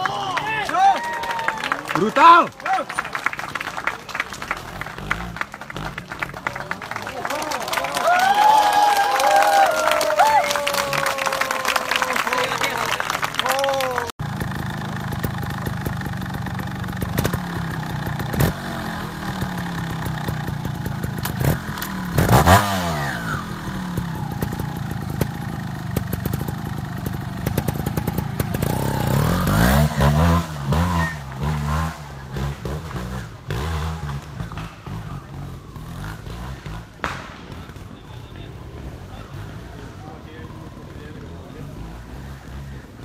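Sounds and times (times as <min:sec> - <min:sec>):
motorcycle idling and revving: 0:03.4 - 0:07.4, 0:13.4 - 0:43.0.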